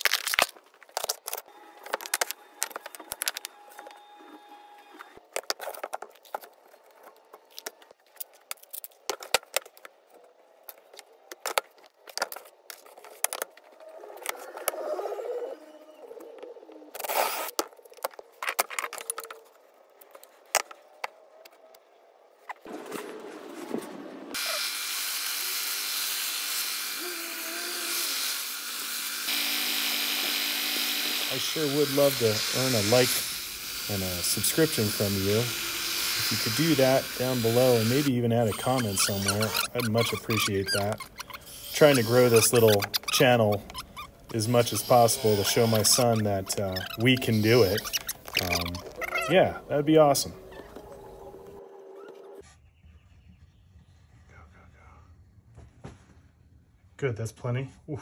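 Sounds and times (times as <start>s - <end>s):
belt sander sanding wood: 24.3s - 49.0s.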